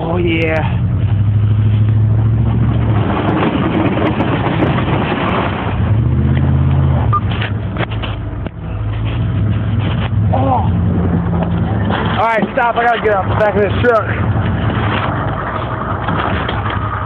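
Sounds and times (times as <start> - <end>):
pickup engine under load: 0.0 - 17.0
wind and snow rushing: 1.5 - 7.8.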